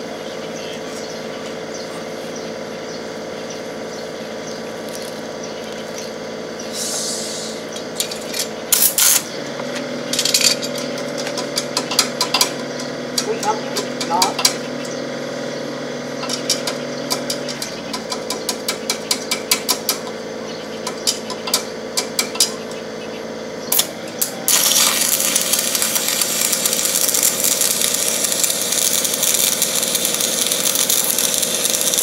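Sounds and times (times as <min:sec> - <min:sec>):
welding generator engine running: 0:00.0 - 0:32.0
welding arc crackling: 0:04.6 - 0:20.2, 0:23.7 - 0:32.0
sharp taps and clicks: 0:16.2 - 0:20.2.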